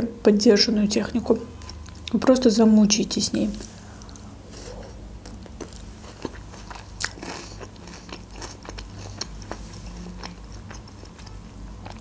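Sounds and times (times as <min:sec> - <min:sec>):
crisp crunchy chewing of salad: 0:03.6 - 0:12.0.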